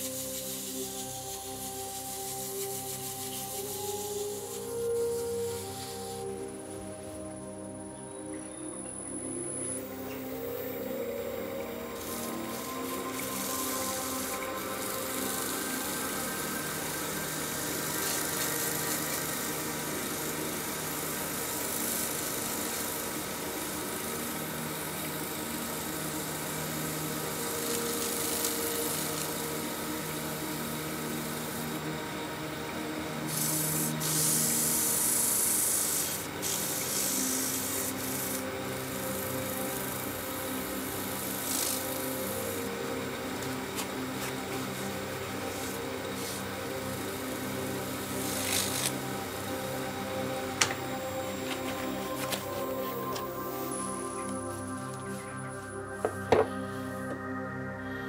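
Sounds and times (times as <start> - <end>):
lathe motor hum: 9.6 - 56.2.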